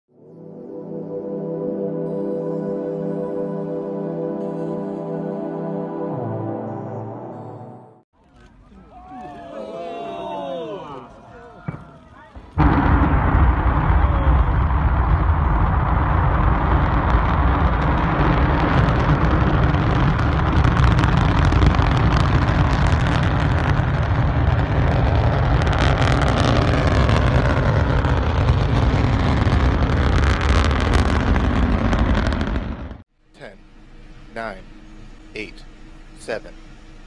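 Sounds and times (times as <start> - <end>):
rocket engine rumbling and crackling: 11.9 - 37.0.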